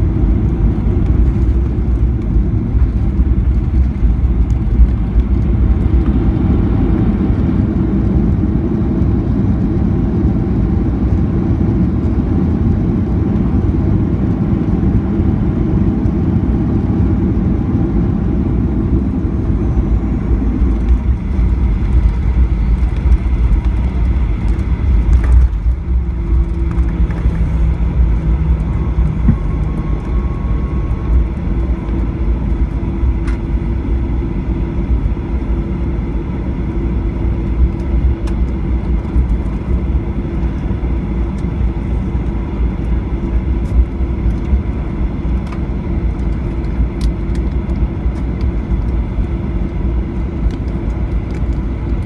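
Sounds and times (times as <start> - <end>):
aircraft wheels and engines rumbling: 0.0 - 52.0
engine hum: 0.0 - 52.0.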